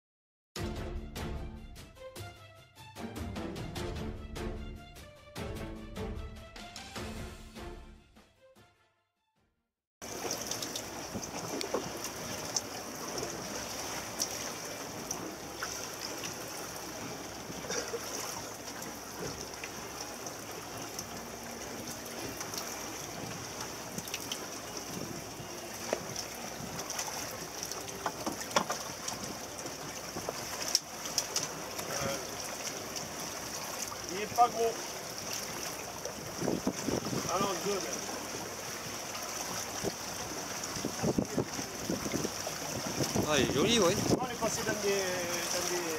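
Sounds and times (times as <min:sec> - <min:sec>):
water splashing along boat hull: 0:10.0 - 0:45.9.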